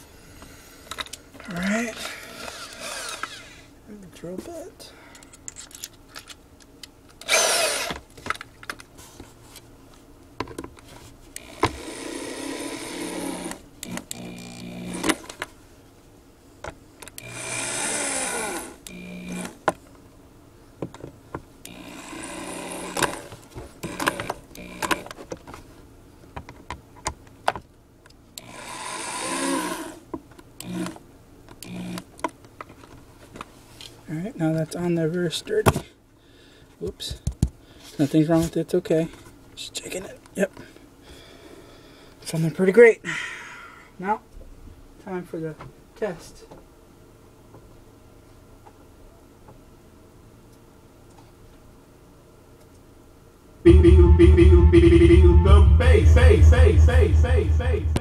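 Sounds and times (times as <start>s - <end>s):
cordless drill whirring: 2.2s - 3.6s, 7.2s - 8.0s, 17.2s - 19.6s, 28.4s - 30.0s.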